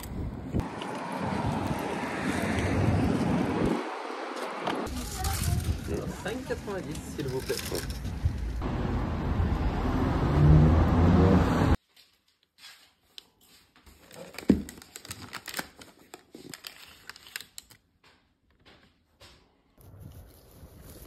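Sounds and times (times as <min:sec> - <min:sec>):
outdoor noise rushing: 0:00.0 - 0:11.8
paper wrapping crinkling: 0:12.5 - 0:18.0.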